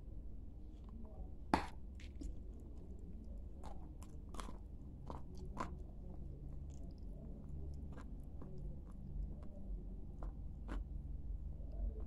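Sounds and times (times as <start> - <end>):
clay bitten with sharp crack: 1.6 - 2.3
chewing crunches: 1.6 - 12.0.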